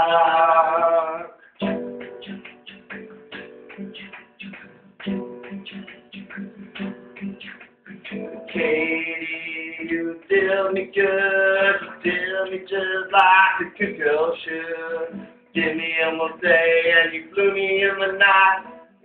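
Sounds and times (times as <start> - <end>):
man singing: 0.0 - 1.7, 8.0 - 18.8
acoustic guitar strumming: 0.0 - 19.0.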